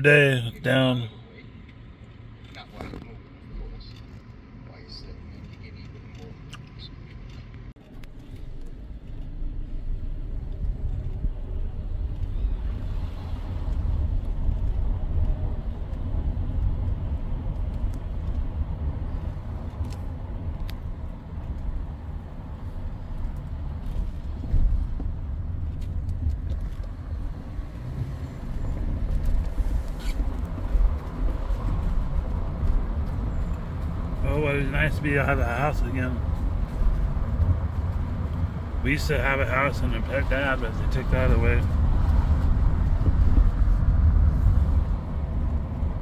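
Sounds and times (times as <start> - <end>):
car engine rumble: 0.0 - 46.0
tyre road noise: 0.0 - 46.0.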